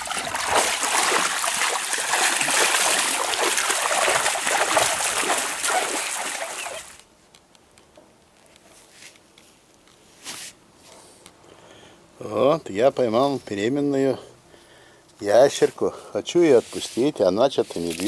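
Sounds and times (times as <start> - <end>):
water splashing by hand: 0.0 - 7.0.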